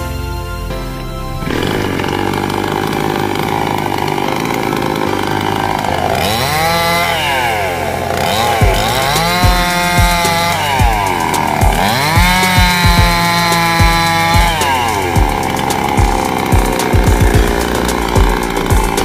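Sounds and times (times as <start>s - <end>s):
chainsaw cutting branches: 0.1s - 19.0s
music with steady beat: 8.2s - 19.0s.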